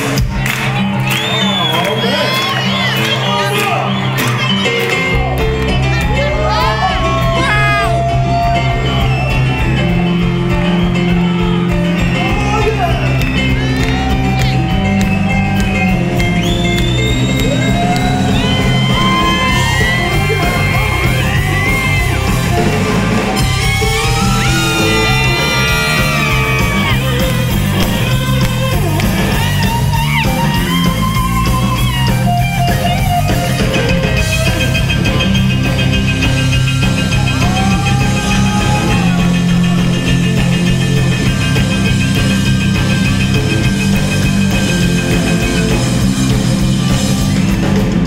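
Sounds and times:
bass guitar: 0.0 - 48.0
drums: 0.0 - 48.0
electric guitar: 3.9 - 48.0
sliding bending lead guitar notes: 13.2 - 48.0.

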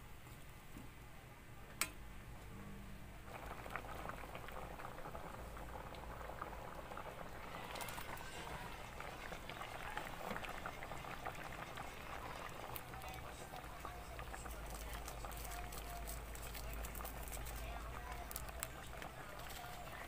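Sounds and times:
stew bubbling in a pot: 3.2 - 20.0
fish sliding into boiling broth: 3.3 - 11.3.

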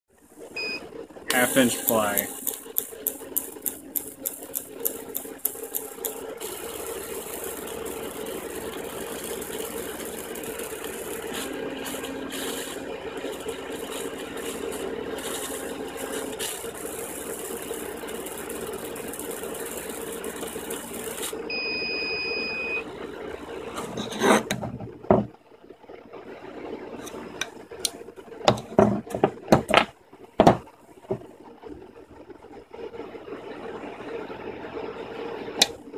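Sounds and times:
laser cutter air assist hiss: 1.3 - 21.4.

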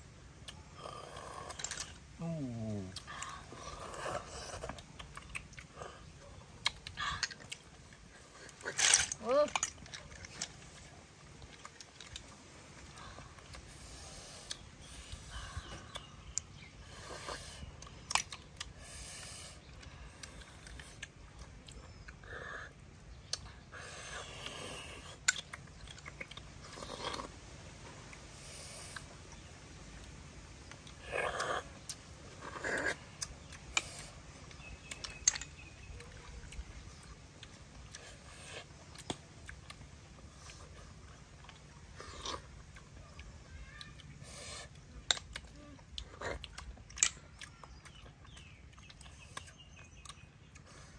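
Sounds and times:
slurping snails from shells: 0.0 - 50.9
soft eating sounds: 0.0 - 50.9
snail shells clicking: 1.2 - 2.1, 14.4 - 16.7, 23.2 - 27.3, 28.9 - 39.8, 44.9 - 50.6.

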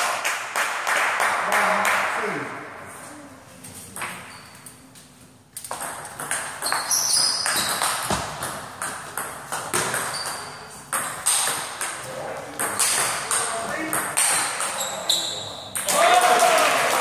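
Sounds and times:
table tennis ball hits: 5.6 - 15.0.

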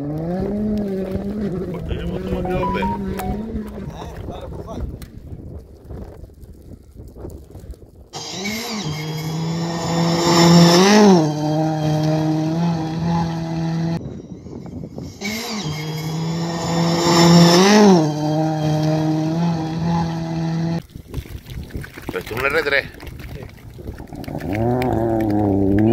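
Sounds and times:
rally car engine at high revs: 0.0 - 2.2, 8.2 - 14.0, 15.2 - 20.8
faint wind: 0.0 - 25.9.

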